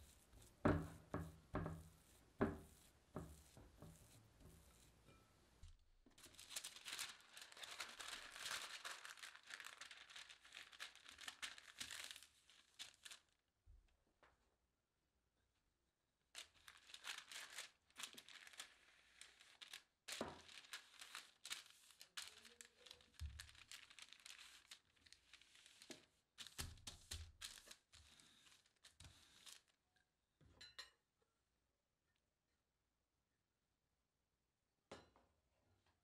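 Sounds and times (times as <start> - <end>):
parchment paper crinkling: 0.0 - 5.0, 6.1 - 13.4, 16.3 - 29.8.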